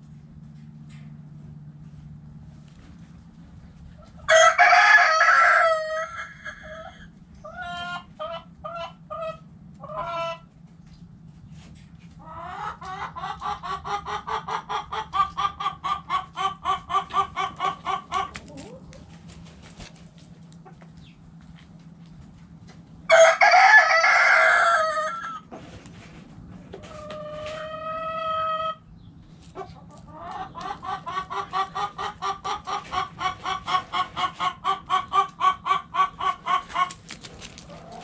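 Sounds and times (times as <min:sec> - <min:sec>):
rooster crowing: 0:04.2 - 0:07.1, 0:23.1 - 0:25.4
hen clucking rapidly: 0:12.2 - 0:21.1, 0:29.4 - 0:38.0.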